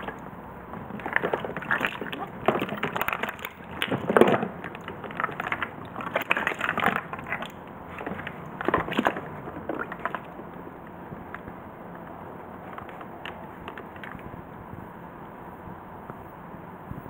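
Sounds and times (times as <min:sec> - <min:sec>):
ice and plastic bags crunching: 0:00.0 - 0:00.2, 0:00.8 - 0:10.3.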